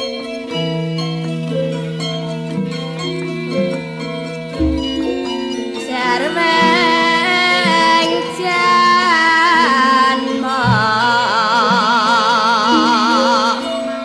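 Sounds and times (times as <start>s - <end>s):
gamelan music: 0.0s - 14.0s
woman singing: 5.8s - 14.0s.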